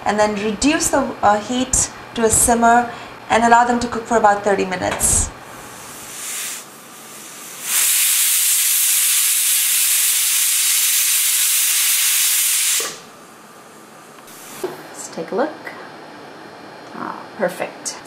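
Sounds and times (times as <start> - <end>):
steam puff: 5.8 - 13.1
pressure cooker whistle hissing: 6.1 - 13.1.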